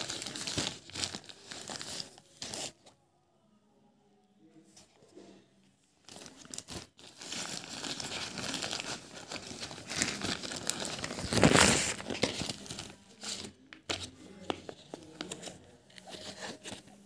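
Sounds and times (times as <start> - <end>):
plastic mailer bag crinkling: 0.0 - 2.8, 6.1 - 13.6.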